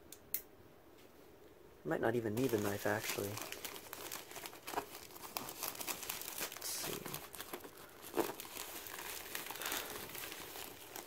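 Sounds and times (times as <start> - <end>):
plastic mailer crinkling: 2.3 - 11.0
plastic tearing: 2.4 - 11.0.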